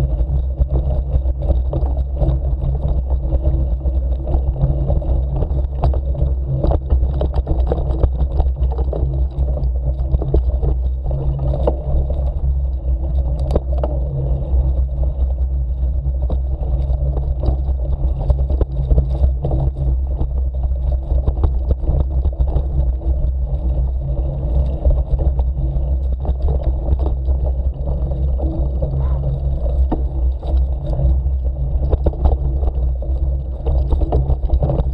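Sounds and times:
vehicle low rumble: 0.0s - 34.9s.

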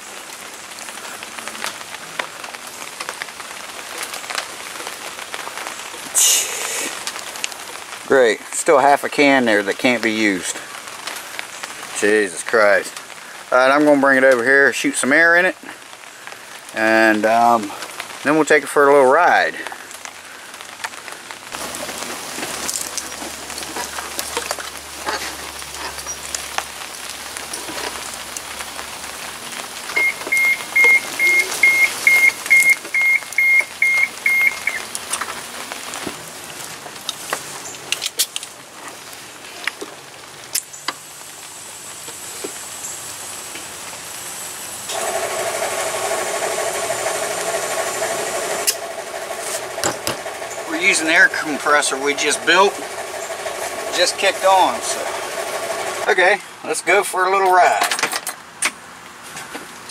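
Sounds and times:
high electronic beeps: 30.0s - 34.8s
air compressor humming: 44.9s - 56.1s.

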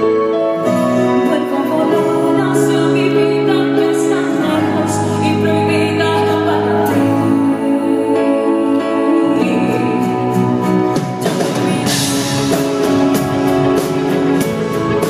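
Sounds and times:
acoustic guitar: 0.0s - 15.0s
bass: 0.0s - 15.0s
keyboards: 0.0s - 15.0s
woman singing ballad: 0.6s - 12.6s.

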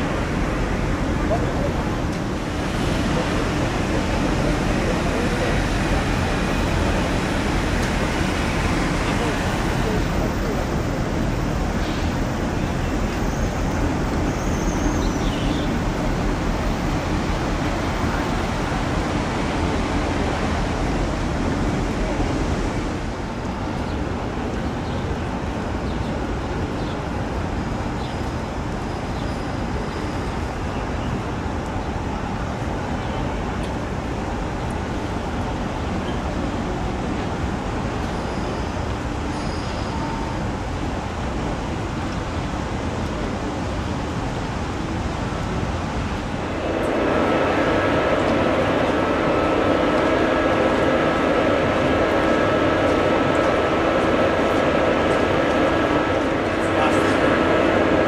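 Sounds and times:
ferry engine drone: 0.0s - 24.8s, 39.7s - 58.0s
wind and water noise: 0.0s - 58.0s.

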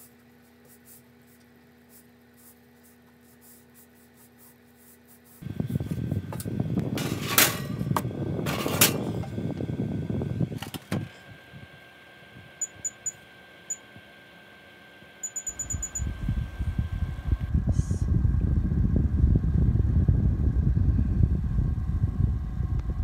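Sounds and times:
oven control panel beeping: 12.6s - 13.9s, 15.2s - 16.5s
low rumbling: 16.0s - 23.0s.

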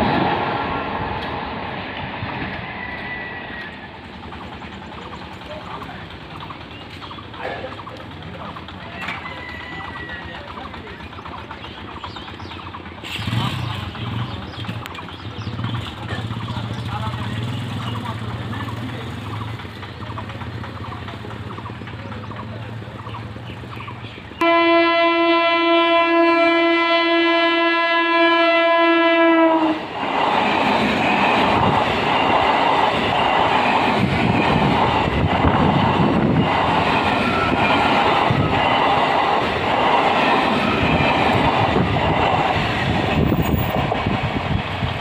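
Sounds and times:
train wheels clattering: 0.0s - 24.4s, 29.6s - 45.0s
train horn blast: 24.4s - 29.9s.

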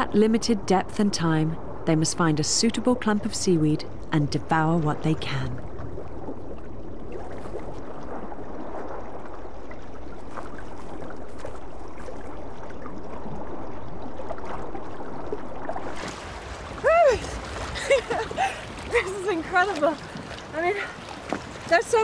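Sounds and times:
water rushing underwater: 4.4s - 22.0s.

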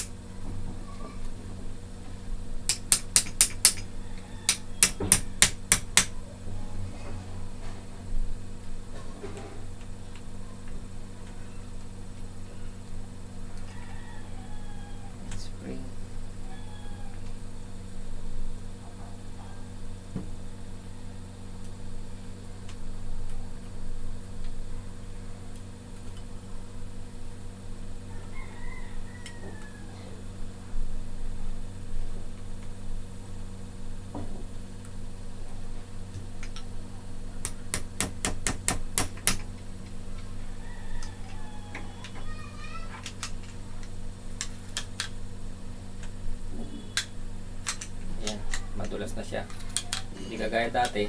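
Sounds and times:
steady low hum: 0.0s - 51.0s.

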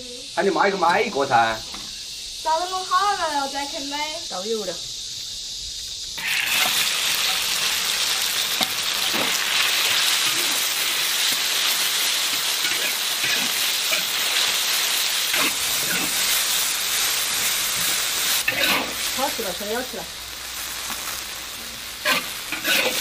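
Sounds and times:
meat sizzling in hot oil: 0.1s - 23.0s
spatula stir-frying in wok: 6.0s - 23.0s.

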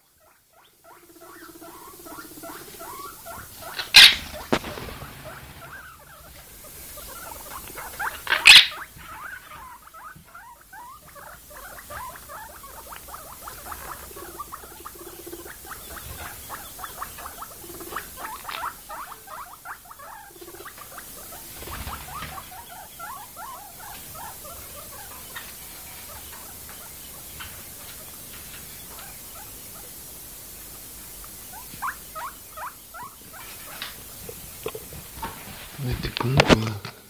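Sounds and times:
guinea pig squeaking: 0.0s - 30.0s, 31.4s - 35.3s
parakeet chattering squeaks: 2.8s - 4.3s, 7.2s - 9.4s.

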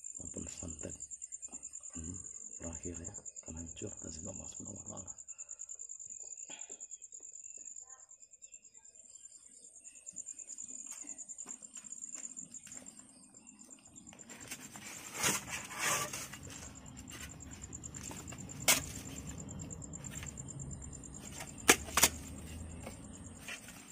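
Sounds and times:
crickets trilling: 0.0s - 23.9s
rustling noise: 14.2s - 20.4s, 21.0s - 23.9s.

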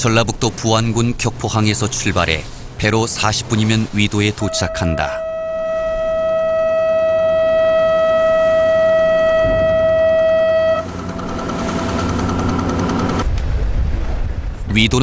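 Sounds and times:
ship engine hum: 0.0s - 15.0s
ferry horn blast: 4.4s - 12.5s.

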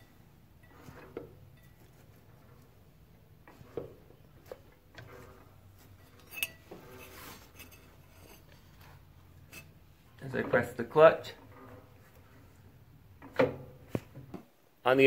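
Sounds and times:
light metallic clinks and knocks: 5.8s - 9.8s.

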